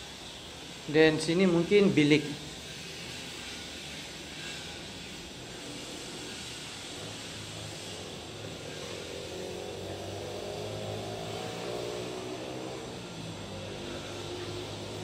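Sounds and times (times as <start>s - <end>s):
distant engine drone: 0.0s - 15.0s
hiss: 0.0s - 15.0s.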